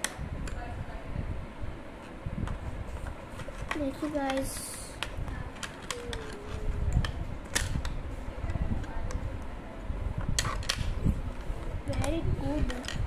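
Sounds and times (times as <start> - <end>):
pencils clicking against plastic box: 3.4 - 8.0, 10.2 - 13.0.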